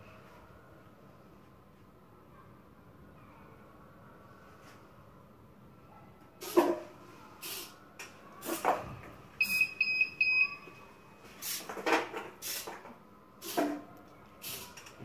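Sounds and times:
buzzer high beeps: 9.4s - 10.8s.

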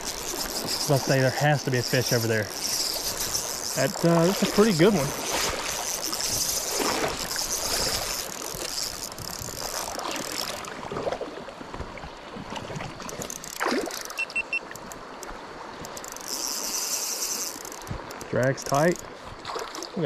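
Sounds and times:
stream water rippling: 0.0s - 20.0s
short high peeps: 14.1s - 14.7s.

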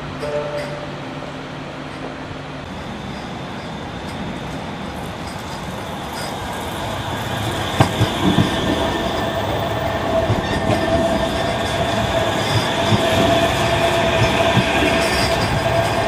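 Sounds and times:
rail rumble: 0.0s - 16.0s
tram whine: 0.0s - 16.0s
wheels knocking: 4.0s - 16.0s.

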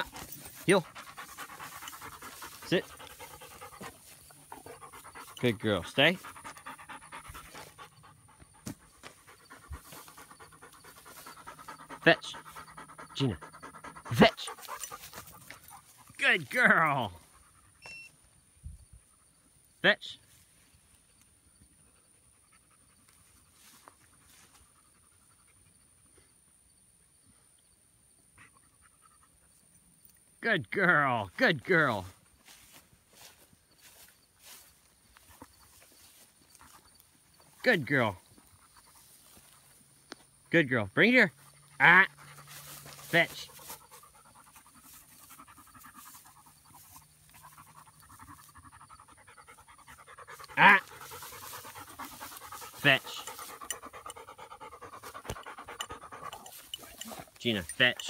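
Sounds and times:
dog panting: 0.0s - 16.2s, 32.5s - 37.6s, 38.2s - 40.3s, 41.3s - 58.0s.

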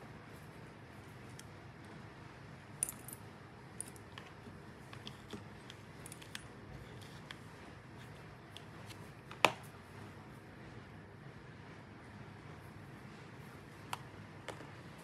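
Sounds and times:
small metal parts clinking: 2.8s - 3.2s.

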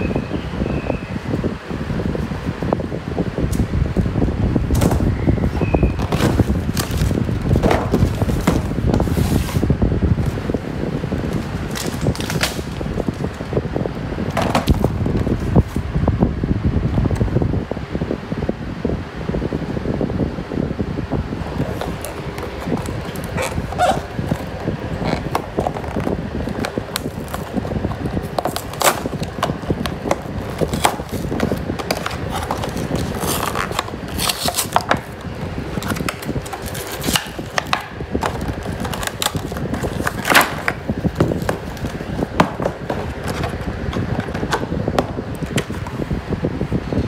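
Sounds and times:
low background hum: 0.0s - 47.0s
plastic insert crinkling: 6.0s - 10.5s, 11.2s - 13.4s, 21.4s - 46.0s
cardboard box tearing: 26.5s - 35.2s.

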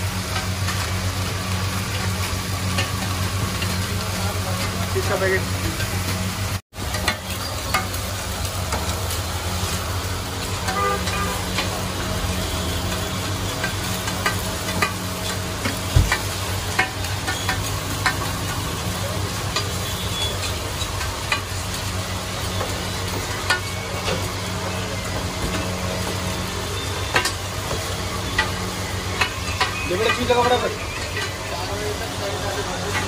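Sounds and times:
burgers sizzling on a griddle: 0.0s - 33.0s
metal spatula tapping griddle: 13.6s - 15.0s, 15.6s - 18.3s, 29.2s - 30.6s
heavy knock: 16.0s - 16.2s.

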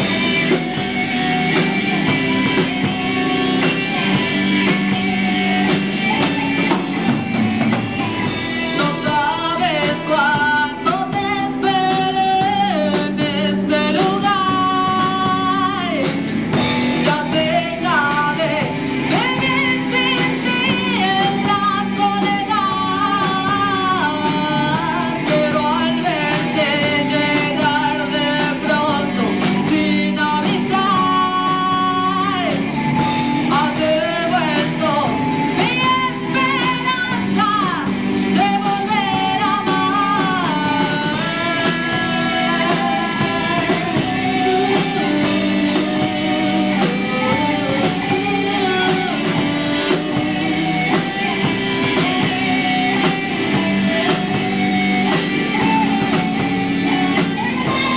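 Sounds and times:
drums: 0.0s - 57.9s
electric guitars: 0.0s - 57.9s
woman singing into microphone: 7.7s - 57.9s.

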